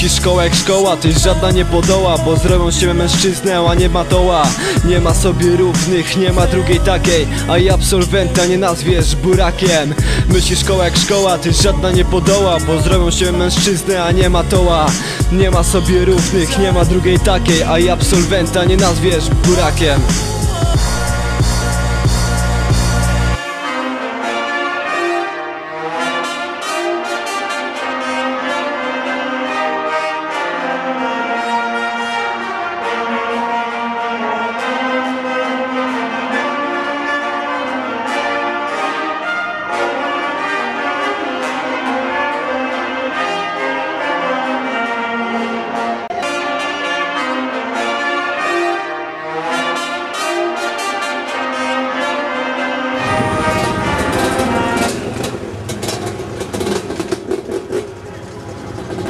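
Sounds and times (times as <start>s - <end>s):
wind band playing a tune: 0.0s - 56.8s
dirt bike engine running: 53.0s - 59.0s.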